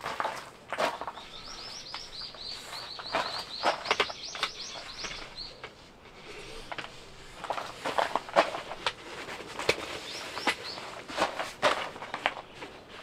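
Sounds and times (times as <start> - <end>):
small bird trilling: 1.2 - 5.6.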